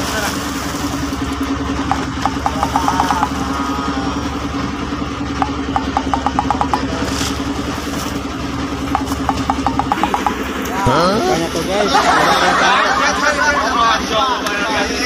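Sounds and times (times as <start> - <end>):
boat engine idling: 0.0 - 15.0
quick high ticks: 8.9 - 10.5.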